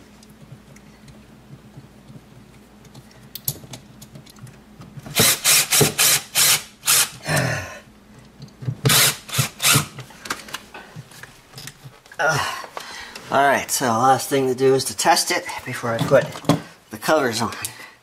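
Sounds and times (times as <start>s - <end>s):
cordless drill bursts: 5.1s - 7.2s, 8.9s - 9.9s.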